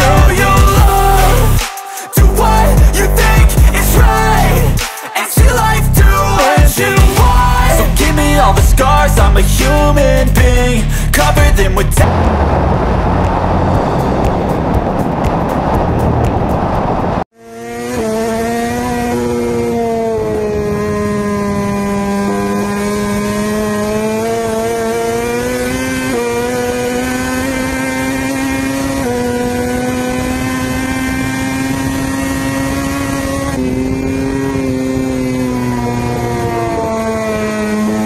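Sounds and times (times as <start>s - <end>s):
motorcycle engine at high revs: 0.0s - 10.6s, 16.9s - 38.0s
wind and road noise: 5.7s - 38.0s.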